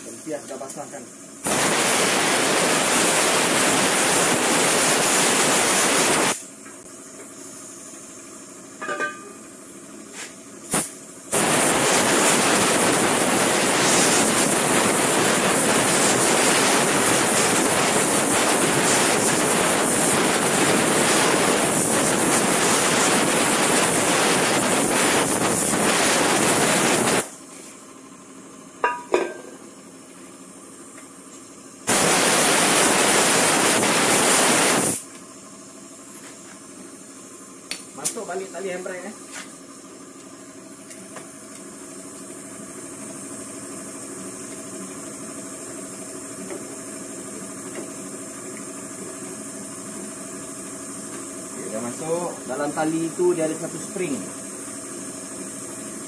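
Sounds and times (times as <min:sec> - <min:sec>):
pressurised jet hissing: 0:00.0 - 0:06.5, 0:10.1 - 0:27.4, 0:31.9 - 0:35.1.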